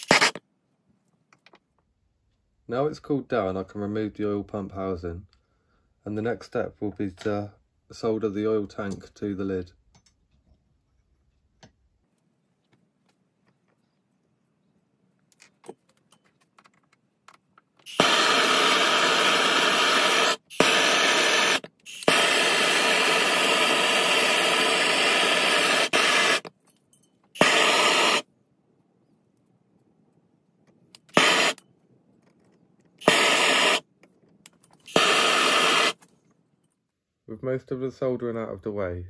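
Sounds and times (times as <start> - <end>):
blowtorch flame hissing: 17.9 - 26.5, 27.4 - 28.2, 31.1 - 31.6, 33.0 - 33.8, 34.9 - 36.0.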